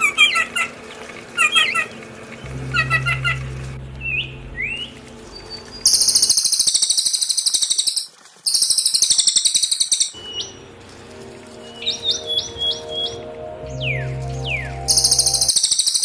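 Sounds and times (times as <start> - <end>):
faint low drone: 0.0 - 6.3, 10.2 - 15.6
songbird chirps and trills: 0.0 - 16.0.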